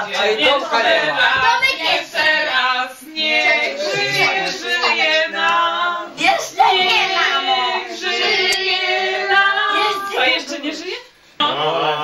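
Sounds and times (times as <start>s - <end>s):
people singing together: 0.0s - 12.0s
child singing: 1.1s - 10.5s.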